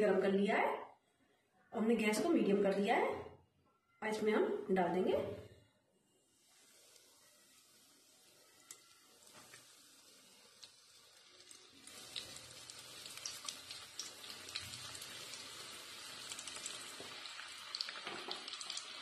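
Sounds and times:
deep-frying sizzle with crackles: 6.2 - 19.0.

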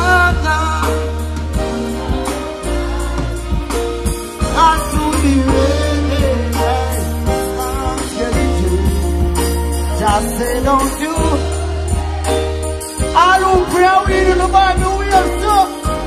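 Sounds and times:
person singing: 0.0 - 11.6
deep bass: 0.0 - 16.0
drum beat: 0.0 - 16.0
loud dancehall music: 0.0 - 16.0.

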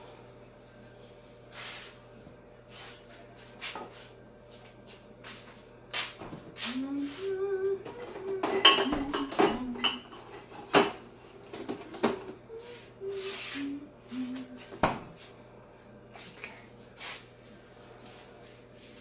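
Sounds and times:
dishes and utensils clattering: 7.7 - 12.4.

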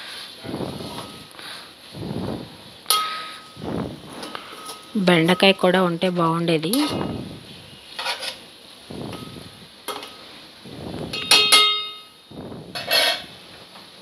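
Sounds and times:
spoon clanging against pot: 2.9 - 3.5, 11.2 - 12.1
metal spoon scraping pot: 7.9 - 8.4, 12.7 - 13.3.

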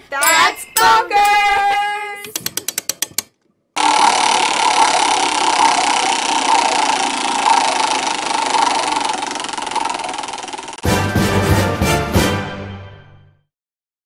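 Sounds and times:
dense whirring: 3.8 - 10.8.

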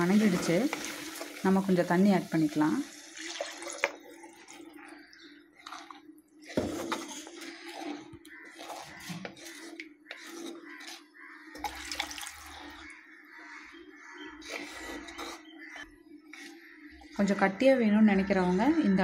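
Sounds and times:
wet sloshing and scraping: 3.2 - 13.1
wooden spatula stirring gravy: 3.8 - 17.2.

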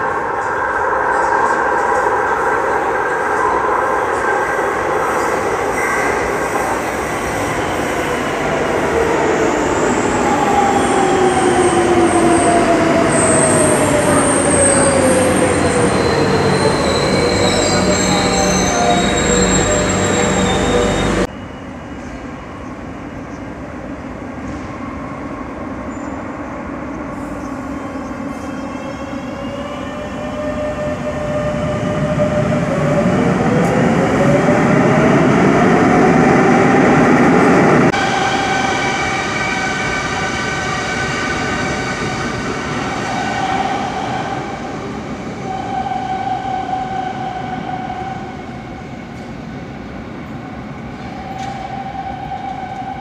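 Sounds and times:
electric train whine: 0.0 - 53.0.

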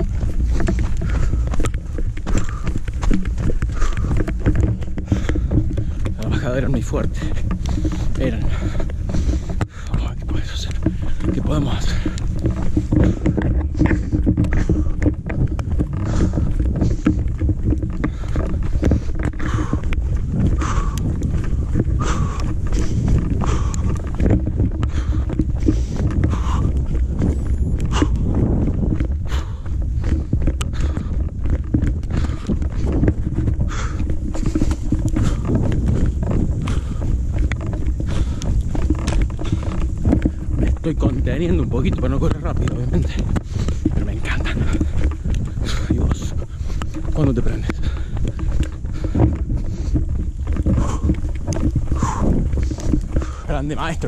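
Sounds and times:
footfalls on dirt trail: 0.0 - 54.0
wind rumble on microphone: 0.0 - 54.0.

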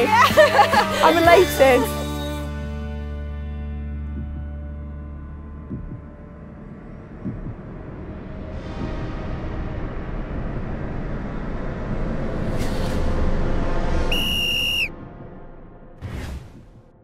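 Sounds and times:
low rumbling build-up: 3.9 - 17.0
whoosh: 7.2 - 17.0
referee's whistle blast: 14.1 - 14.9.

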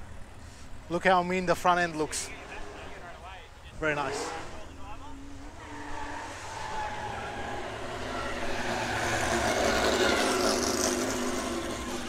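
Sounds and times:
race car engine driving past: 2.1 - 12.0.

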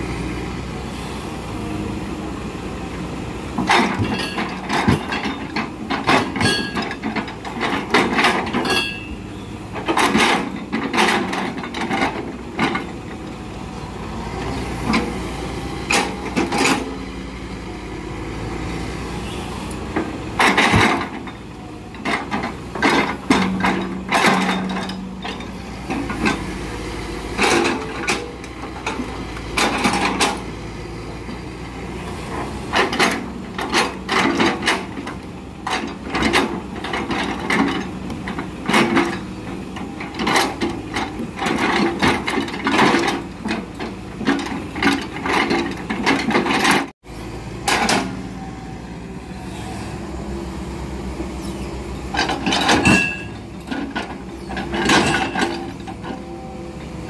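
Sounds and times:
diesel engine running: 0.0 - 57.0
logs knocking and clunking: 3.5 - 13.1, 19.9 - 26.6.

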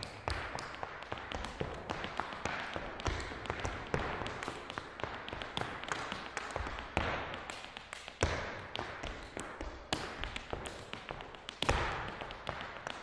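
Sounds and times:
hard shoes clicking on floor: 0.0 - 13.0.

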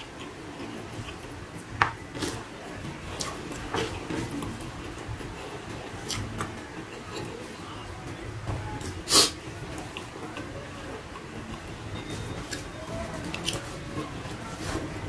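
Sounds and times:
chewing and wet mouth smacks: 6.0 - 7.3.

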